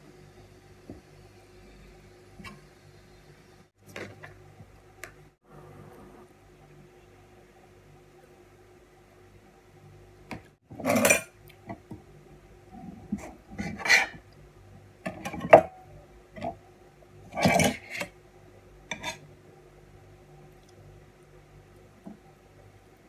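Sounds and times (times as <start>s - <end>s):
cutlery scraping a plate: 10.8s - 11.3s, 13.2s - 14.2s, 17.3s - 18.2s, 18.9s - 19.3s.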